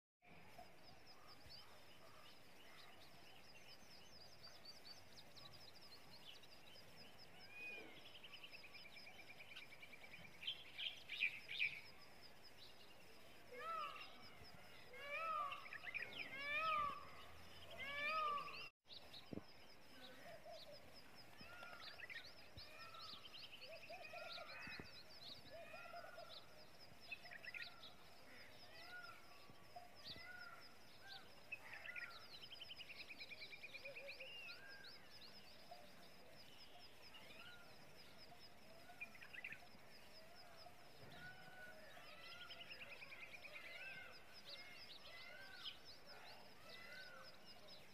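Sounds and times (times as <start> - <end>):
small birds twittering and chirping: 0.2 - 47.9.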